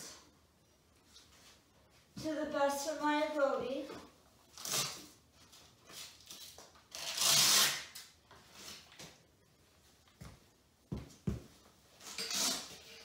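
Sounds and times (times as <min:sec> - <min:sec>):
straps rustling and scraping: 0:03.8 - 0:09.4, 0:11.9 - 0:13.0.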